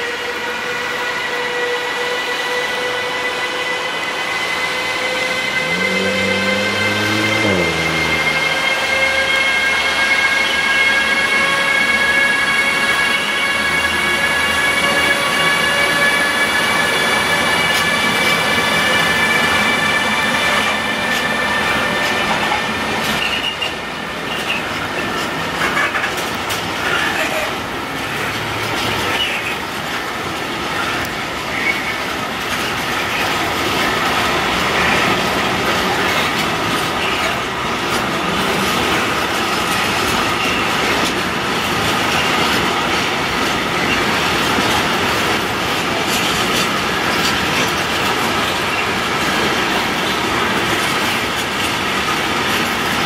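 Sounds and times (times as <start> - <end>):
train wheels rumbling: 0.0 - 53.0
clatter over rail joints: 20.6 - 53.0.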